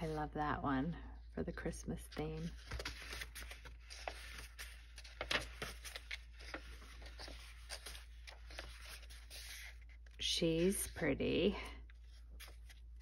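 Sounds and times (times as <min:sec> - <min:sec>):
book pages turning: 0:02.0 - 0:13.0.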